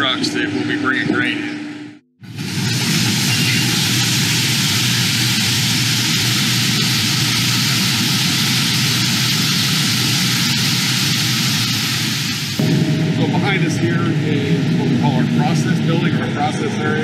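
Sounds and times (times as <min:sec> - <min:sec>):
low hum: 0:08.9 - 0:17.0.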